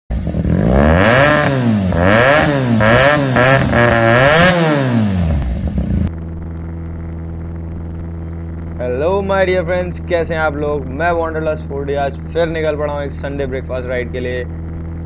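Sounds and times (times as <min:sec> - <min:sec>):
motorcycle engine revving: 0:00.1 - 0:15.0
muffled engine drone: 0:00.1 - 0:15.0.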